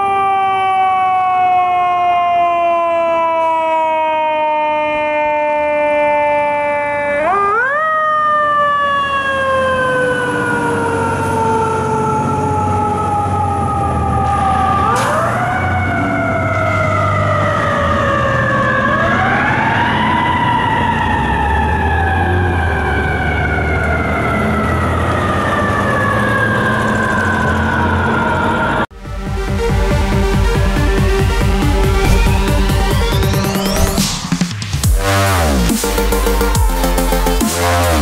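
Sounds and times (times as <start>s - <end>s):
fire truck siren wailing: 0.0s - 38.0s
low rumble: 31.6s - 34.3s.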